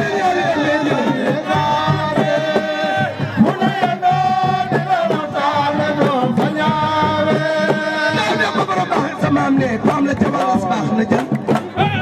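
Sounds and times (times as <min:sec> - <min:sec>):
man singing into a microphone: 0:00.0 - 0:12.0
steady drum beat: 0:00.0 - 0:12.0.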